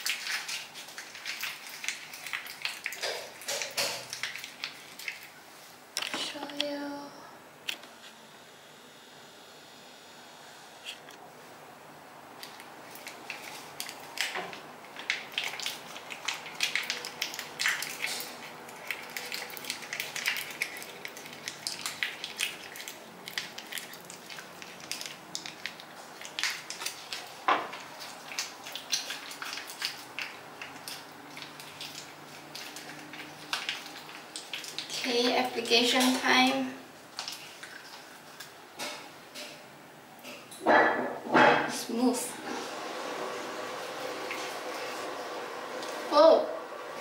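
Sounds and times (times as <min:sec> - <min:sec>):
plastic pouch crinkling: 0:12.4 - 0:35.0.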